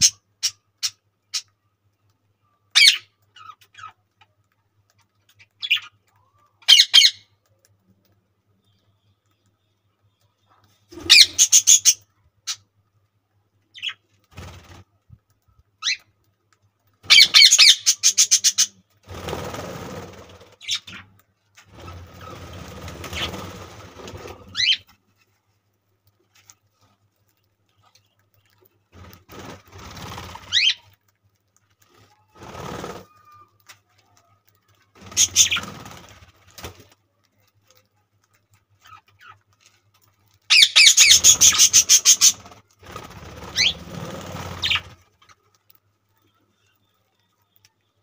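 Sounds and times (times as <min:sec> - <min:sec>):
wings flapping: 0:10.6 - 0:12.0, 0:13.8 - 0:45.9
budgerigars chirping: 0:11.0 - 0:12.0, 0:17.1 - 0:18.7, 0:35.1 - 0:35.7, 0:40.5 - 0:42.4, 0:44.6 - 0:44.9.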